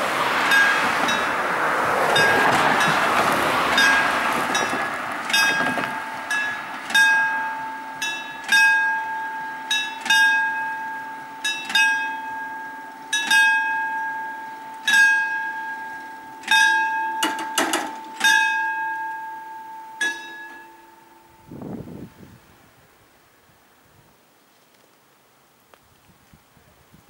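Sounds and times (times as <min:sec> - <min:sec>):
van driving past: 0:00.0 - 0:08.4
level crossing warning bell: 0:00.4 - 0:21.8.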